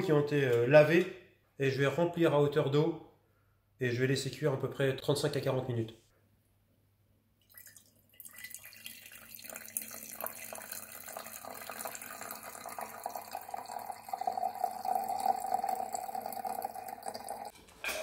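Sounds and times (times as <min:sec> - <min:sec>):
liquid pouring and splashing: 0:07.4 - 0:17.5.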